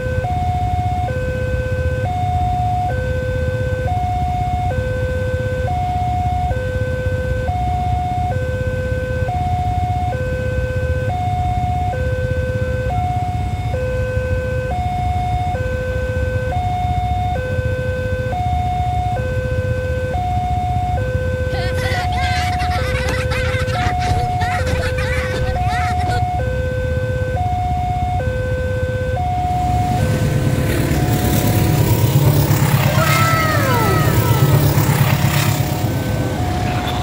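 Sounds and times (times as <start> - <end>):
two-tone level crossing alarm: 0.0 - 22.0, 26.0 - 30.1.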